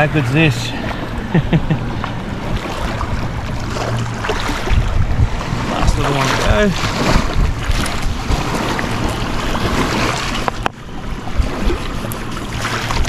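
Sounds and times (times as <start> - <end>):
wind buffeting microphone: 0.0 - 13.0
small waves washing on rocks: 2.4 - 13.0.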